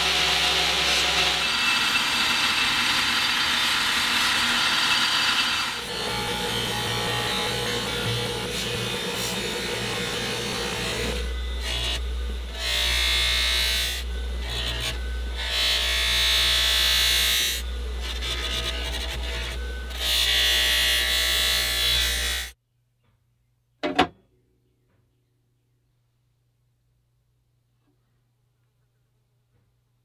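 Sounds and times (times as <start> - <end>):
grinding wheel motor hum: 0.0 - 22.6.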